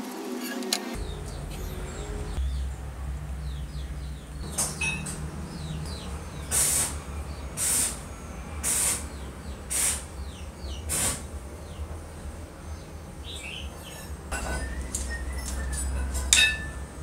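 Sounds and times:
birds chirping faintly: 0:01.0 - 0:17.0
steady low hum: 0:01.0 - 0:17.0
hissing rasps from metal stove part: 0:06.5 - 0:07.0, 0:07.6 - 0:08.0, 0:08.6 - 0:09.1, 0:09.7 - 0:10.1, 0:10.9 - 0:11.3.

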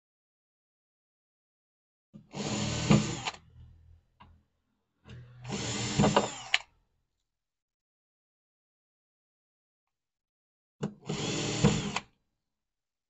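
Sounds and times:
cordless drill driving screws: 0:02.3 - 0:03.4, 0:05.5 - 0:06.7, 0:11.0 - 0:12.1.

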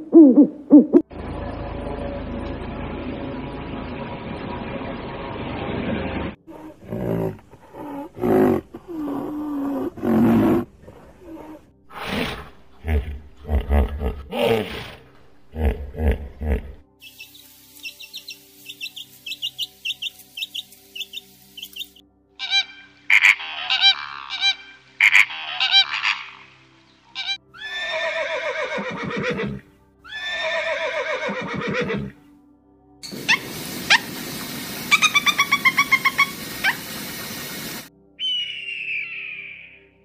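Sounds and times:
hiss: 0:17.0 - 0:22.0, 0:33.0 - 0:37.9
wren chirping: 0:17.0 - 0:22.0, 0:33.0 - 0:39.5
lovebird chirps: 0:17.0 - 0:22.6, 0:38.2 - 0:39.8
bird calls and clicks: 0:17.0 - 0:26.4, 0:33.0 - 0:39.2
flamingo honking calls: 0:19.4 - 0:26.5, 0:33.1 - 0:37.9.

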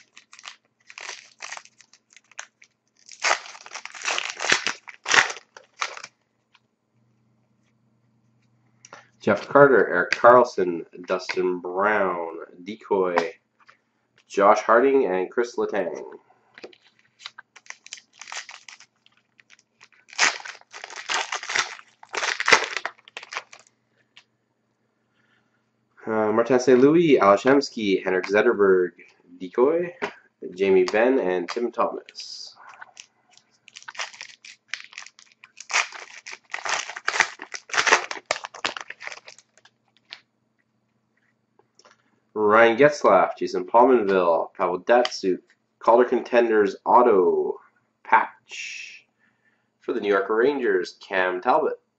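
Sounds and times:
plastic wrapper crinkling and tearing: 0:00.0 - 0:06.1, 0:16.6 - 0:23.7, 0:30.8 - 0:31.7, 0:32.7 - 0:40.3.

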